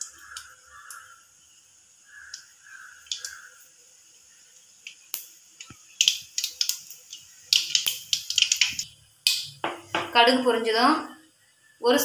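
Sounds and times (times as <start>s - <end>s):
mustard seeds popping in hot oil: 0.0s - 1.1s, 2.1s - 3.6s, 4.2s - 10.4s
crow cawing: 0.0s - 1.4s, 2.0s - 3.6s.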